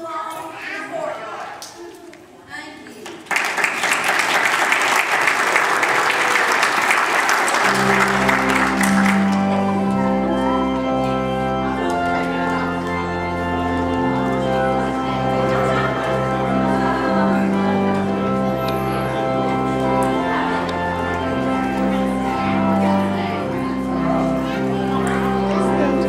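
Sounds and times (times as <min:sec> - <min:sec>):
audience clapping: 0:02.9 - 0:10.3
organ playing held chords: 0:05.5 - 0:26.0.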